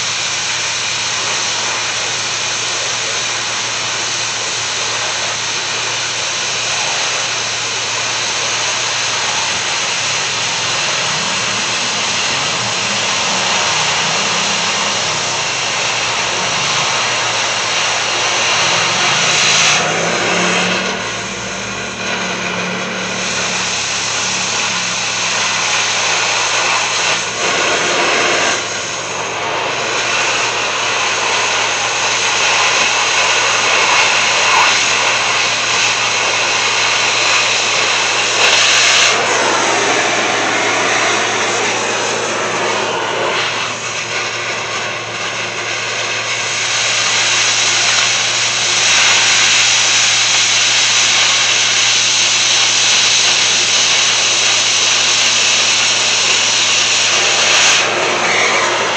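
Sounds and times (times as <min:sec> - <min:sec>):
cutting torch hissing: 0:00.0 - 0:58.9
low hum: 0:06.7 - 0:29.8, 0:37.7 - 0:46.6.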